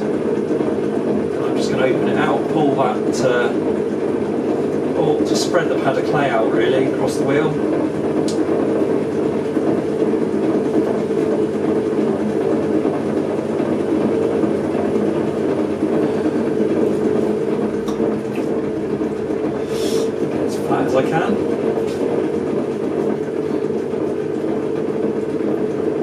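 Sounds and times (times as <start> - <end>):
potter's wheel humming: 0.0 - 26.0.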